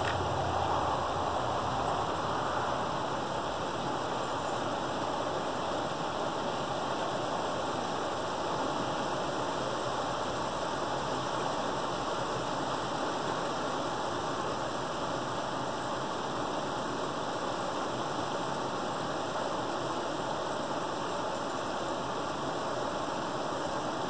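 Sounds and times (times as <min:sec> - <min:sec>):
creek water rushing: 0:00.0 - 0:24.0.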